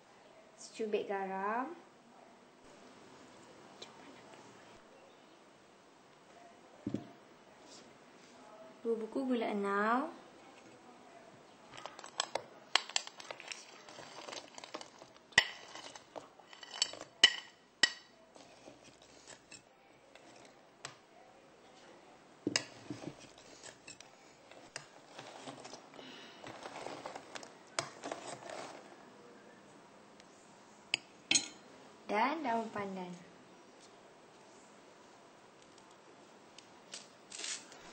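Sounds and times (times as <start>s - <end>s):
metal spoon clinking on pot: 15.4s - 18.1s, 30.9s - 31.6s.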